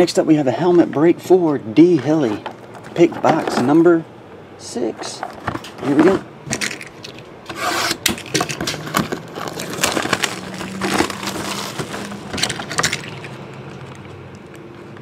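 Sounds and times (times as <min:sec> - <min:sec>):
cardboard box tearing and crinkling: 0:07.5 - 0:13.2.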